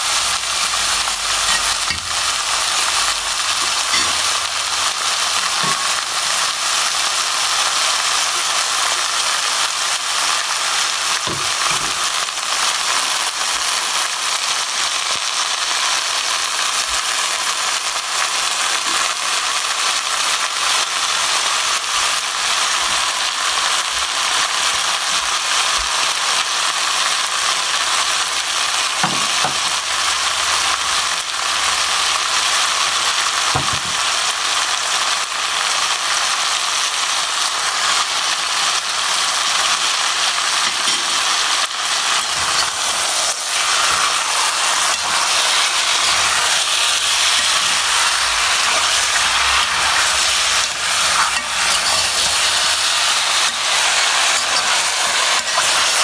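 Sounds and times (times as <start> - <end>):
food sizzling in a pan: 0.0 - 56.0
spoon scraping a pan: 3.4 - 4.5, 40.6 - 56.0.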